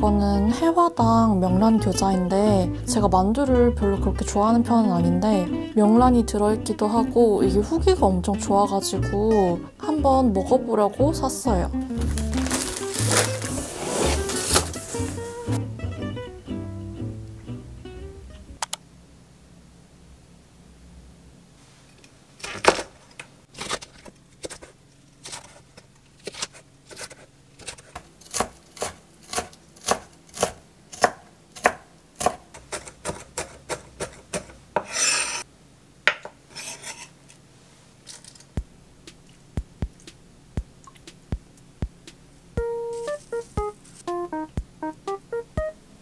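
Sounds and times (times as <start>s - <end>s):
blade scraping across board: 13.1s - 15.6s, 34.8s - 35.4s, 36.5s - 37.2s
knife chopping on wooden board: 27.7s - 35.3s.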